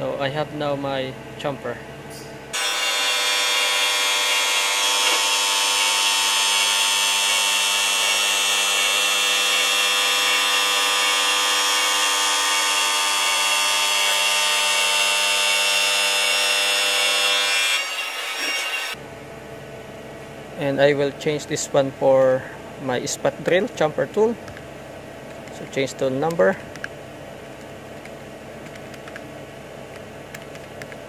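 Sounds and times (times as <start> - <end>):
milling machine cutter ringing: 2.6 - 19.0.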